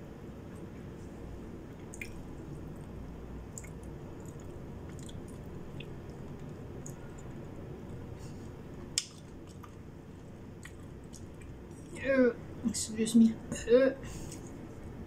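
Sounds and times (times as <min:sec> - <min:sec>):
low steady hum: 0:00.0 - 0:15.0
wet chewing and smacking: 0:01.7 - 0:08.1, 0:08.8 - 0:12.0.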